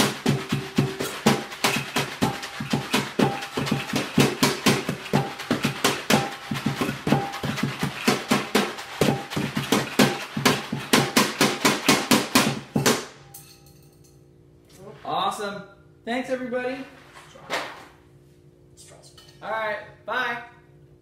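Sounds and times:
utensils hitting plastic jars: 0:00.0 - 0:13.2
utensils striking metal bowls: 0:00.0 - 0:14.1.

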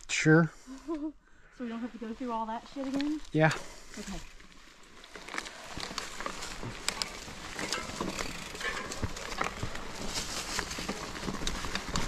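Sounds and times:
tyres crunching over dirt: 0:04.0 - 0:12.0
bike clicks and rattles: 0:04.4 - 0:12.0.

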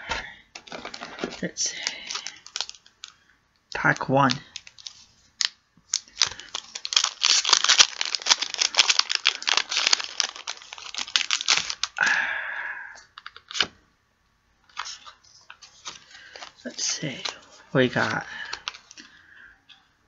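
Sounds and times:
foil pack crinkling: 0:00.5 - 0:03.2, 0:03.8 - 0:12.0, 0:13.2 - 0:13.7, 0:14.7 - 0:19.3
foil tearing: 0:00.6 - 0:02.8, 0:04.5 - 0:12.0.

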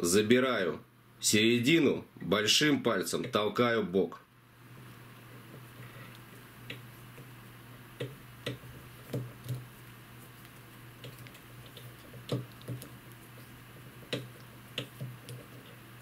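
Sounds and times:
steady low hum: 0:04.2 - 0:16.0.

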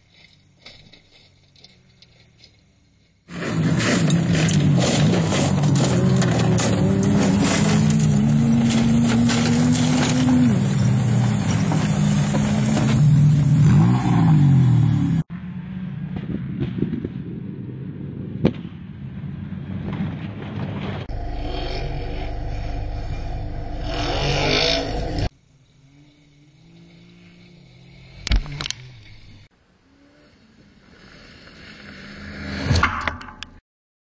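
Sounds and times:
buggy engine revving: 0:03.3 - 0:15.3, 0:21.0 - 0:30.4.

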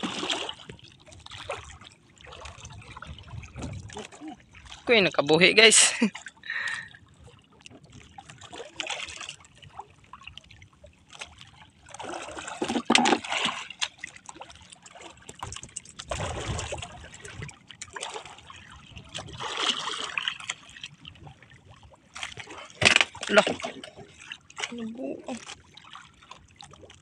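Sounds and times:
water lapping against boat hull: 0:00.0 - 0:27.0
small knocks on hull: 0:12.5 - 0:13.3, 0:22.8 - 0:23.3.

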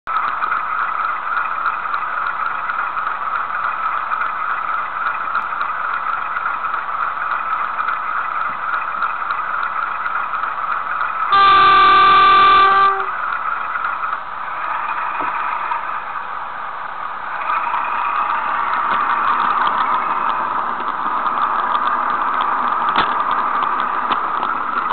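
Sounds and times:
diesel engine idling: 0:00.2 - 0:24.9
locomotive horn: 0:11.3 - 0:13.2.

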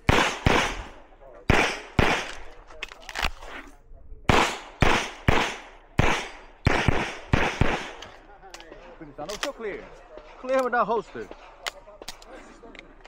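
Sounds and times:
pistol shots with echo: 0:00.0 - 0:02.5, 0:04.3 - 0:10.4.

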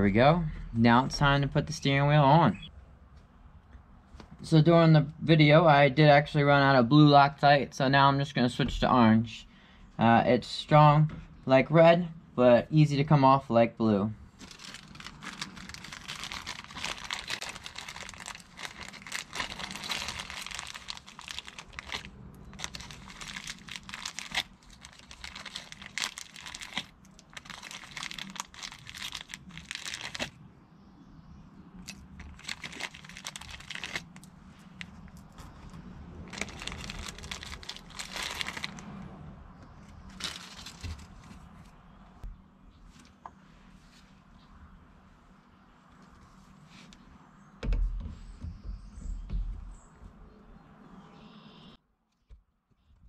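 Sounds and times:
plastic bag crinkling: 0:14.3 - 0:30.4, 0:31.8 - 0:39.0, 0:40.0 - 0:41.4.

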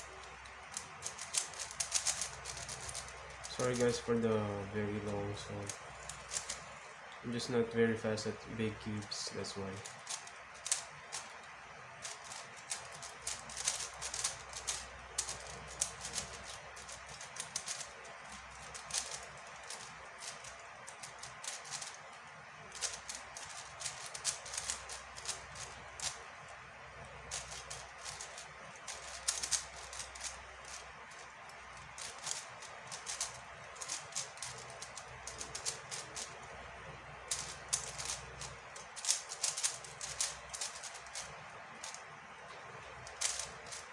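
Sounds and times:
plastic puzzle cube clicking: 0:00.1 - 0:04.0, 0:05.6 - 0:06.6, 0:09.8 - 0:11.3, 0:12.0 - 0:22.0, 0:22.7 - 0:26.2, 0:27.3 - 0:36.5, 0:37.3 - 0:42.0, 0:43.0 - 0:43.9.

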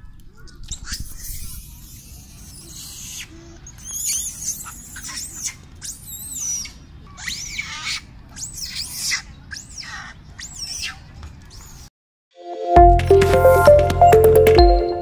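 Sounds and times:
monkeys squealing: 0:00.8 - 0:11.0.

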